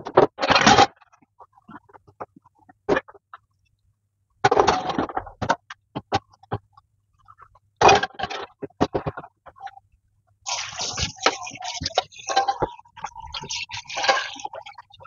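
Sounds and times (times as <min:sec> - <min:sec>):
water splashing in sink: 0:10.5 - 0:15.0.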